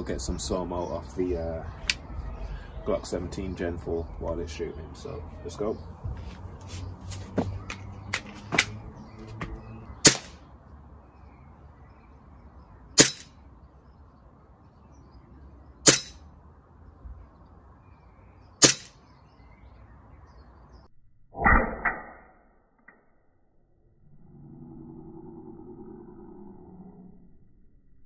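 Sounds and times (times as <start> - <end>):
bb pistol shots: 10.0 - 10.4, 13.0 - 13.3, 15.8 - 16.2, 18.6 - 19.0.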